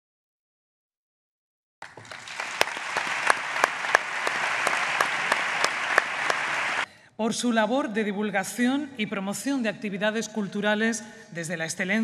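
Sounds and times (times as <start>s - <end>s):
audience applauding: 1.8s - 6.9s.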